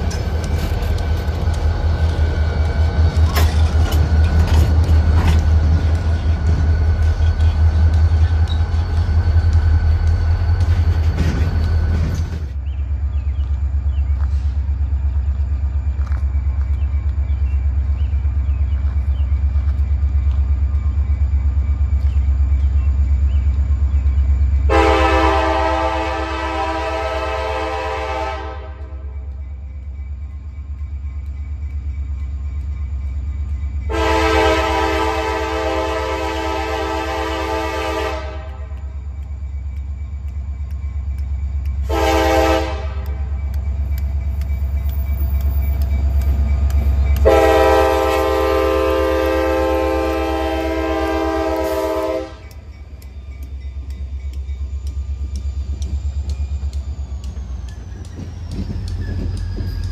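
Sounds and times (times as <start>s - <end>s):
locomotive engines rumbling: 0.0s - 59.9s
train air horn blasts: 24.7s - 29.2s, 33.9s - 38.8s, 41.8s - 43.4s, 47.2s - 52.6s.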